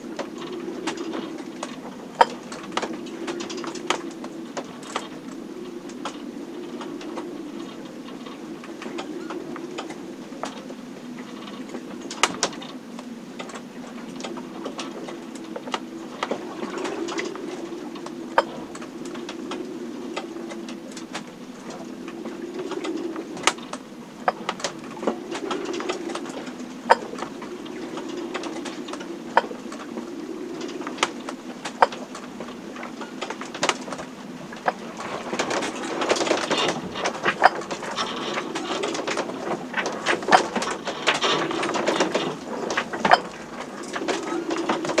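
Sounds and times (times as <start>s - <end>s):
boat fittings creaking and ticking: 0.2s - 45.0s
low wavering drone: 12.8s - 45.0s.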